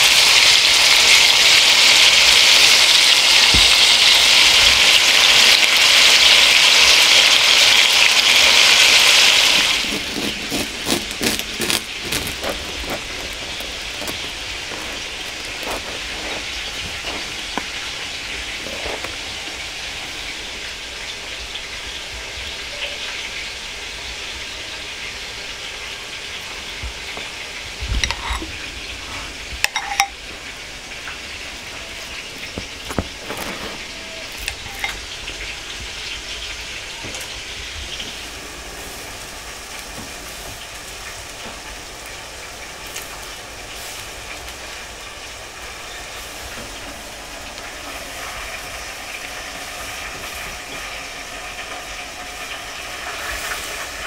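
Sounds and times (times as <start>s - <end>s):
steady hiss: 11.4s - 54.0s
spoon and bowl clicking: 28.0s - 28.4s, 29.7s - 30.2s, 34.4s - 35.0s.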